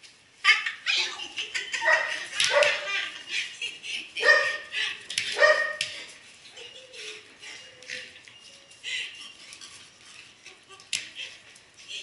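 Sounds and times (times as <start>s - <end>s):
dog barking: 1.8s - 2.9s, 4.2s - 4.6s, 5.4s - 5.8s.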